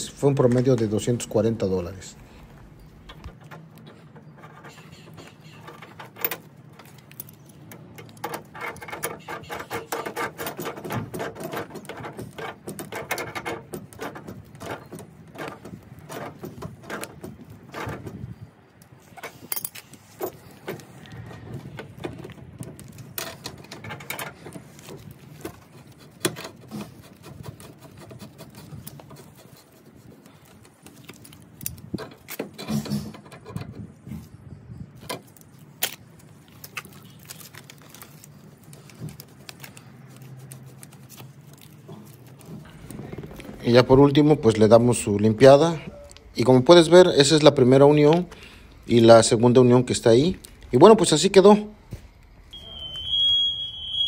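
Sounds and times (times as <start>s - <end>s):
metal pipes clinking and scraping: 2.8s - 18.4s.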